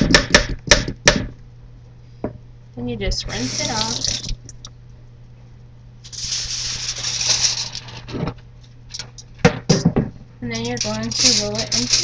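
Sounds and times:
sharp knocks: 0.0s - 1.4s
tap water running: 3.2s - 4.7s.

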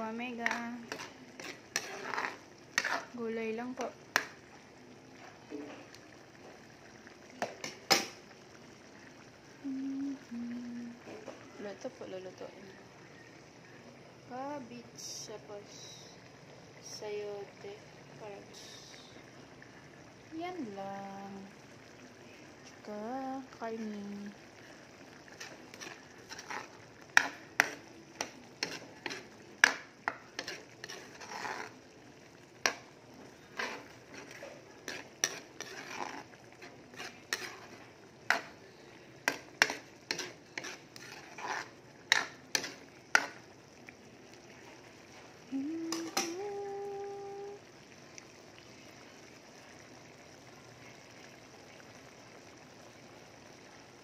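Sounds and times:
stew simmering: 0.0s - 54.0s
ladle scraping metal pan: 0.4s - 3.2s, 25.3s - 31.8s, 32.6s - 38.6s, 39.2s - 43.4s.

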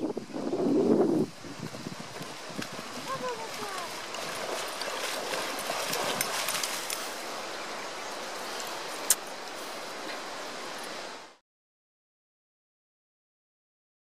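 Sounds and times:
steady outdoor hiss: 0.0s - 11.4s
dogs splashing through water: 1.6s - 7.4s.

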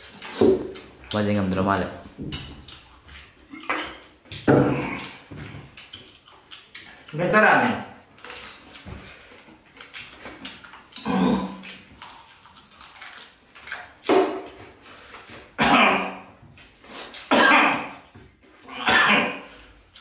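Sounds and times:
man coughing and clearing throat: 15.6s - 16.2s, 17.3s - 17.9s, 18.8s - 19.5s.

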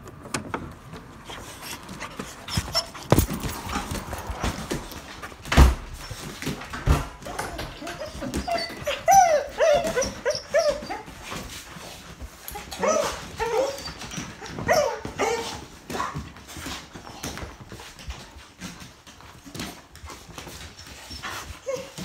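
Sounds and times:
dog whining: 2.2s - 4.5s, 7.1s - 11.4s, 12.5s - 16.2s.

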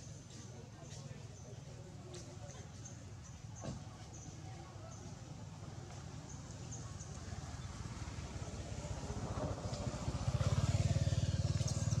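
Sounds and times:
vehicle engine rumbling: 5.1s - 12.0s.

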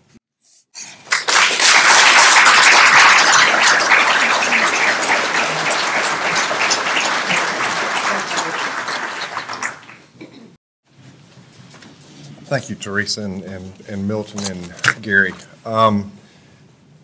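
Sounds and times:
audience applauding: 1.1s - 10.2s.

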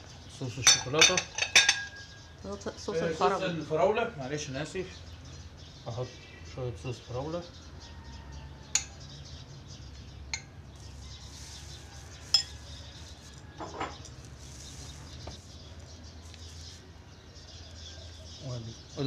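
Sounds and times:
spoon clinking on china: 0.6s - 2.1s, 12.3s - 12.8s.

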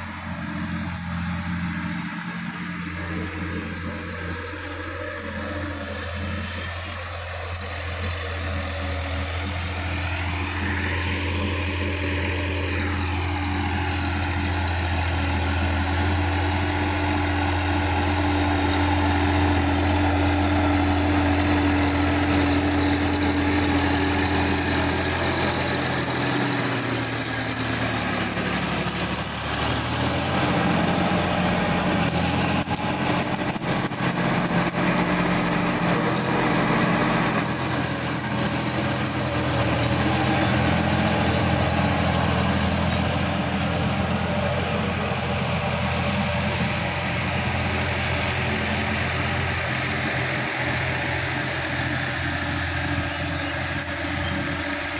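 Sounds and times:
tractor diesel engine droning: 0.0s - 54.9s.

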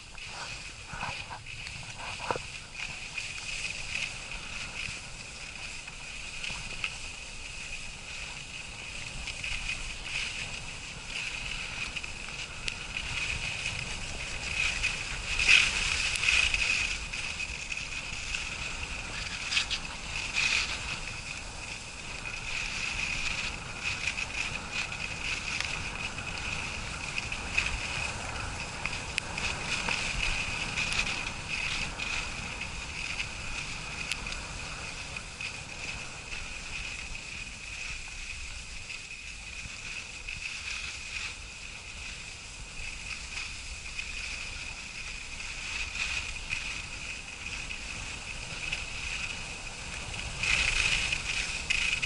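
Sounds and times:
ski scrapes and knocks: 0.0s - 52.0s
skis hissing over snow: 0.0s - 52.0s.

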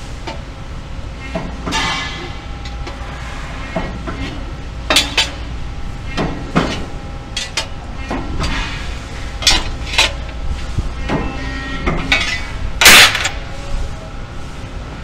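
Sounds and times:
low machine hum: 0.0s - 15.0s
sheet metal parts clanking: 9.4s - 10.3s, 11.0s - 13.4s.

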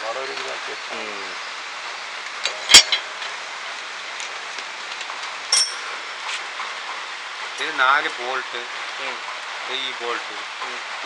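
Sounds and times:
steady hiss: 0.0s - 11.0s
ringing metal clink: 5.5s - 6.2s.

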